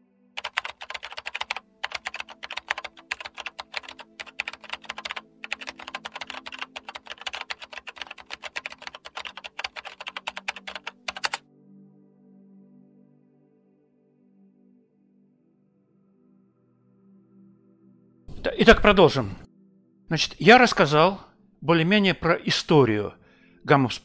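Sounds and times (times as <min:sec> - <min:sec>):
rapid keyboard typing: 0:00.4 - 0:11.4
ambient music pad: 0:11.0 - 0:18.3.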